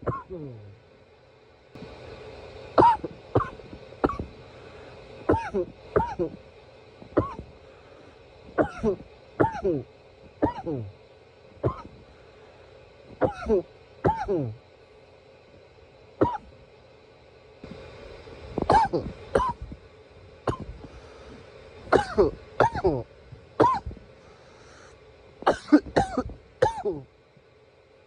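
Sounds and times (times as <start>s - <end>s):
man coughing: 0.0s - 0.7s, 2.8s - 4.3s, 5.3s - 6.4s, 7.2s - 7.4s, 8.6s - 10.9s, 11.6s - 12.0s, 13.2s - 14.6s, 16.2s - 16.5s, 18.7s - 19.7s, 21.9s - 23.9s, 25.4s - 27.1s.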